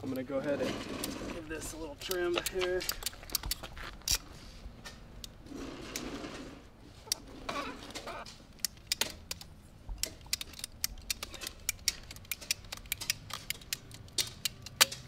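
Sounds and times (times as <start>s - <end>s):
ratcheting pipe cutter clicking: 2.0s - 4.2s, 8.6s - 15.0s.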